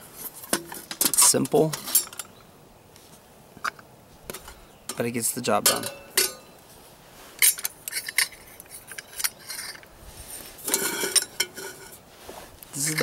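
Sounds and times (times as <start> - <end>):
metal clinks and scrapes: 0.1 - 2.4, 5.6 - 6.5, 7.4 - 12.0, 12.8 - 13.0.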